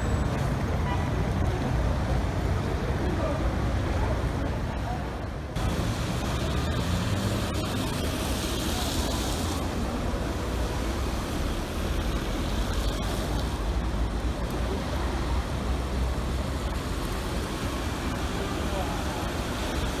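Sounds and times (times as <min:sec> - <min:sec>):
low traffic rumble: 0:00.0 - 0:20.0
tyres hissing on wet road: 0:05.6 - 0:20.0.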